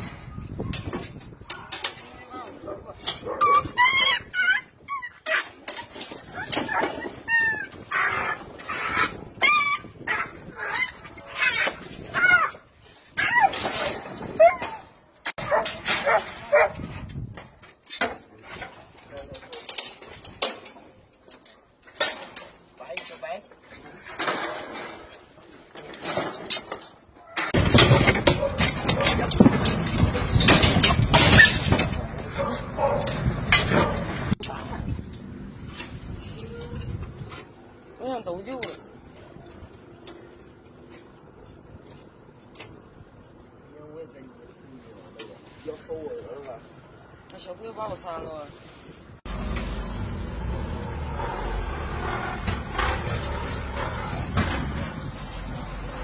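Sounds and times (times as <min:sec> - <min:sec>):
dogs yelping and whining: 0:03.2 - 0:05.6, 0:06.2 - 0:12.6, 0:13.2 - 0:14.9
metal wire cages clanking: 0:13.3 - 0:35.0, 0:49.3 - 0:56.0
dog barking: 0:15.4 - 0:16.8, 0:32.3 - 0:33.1.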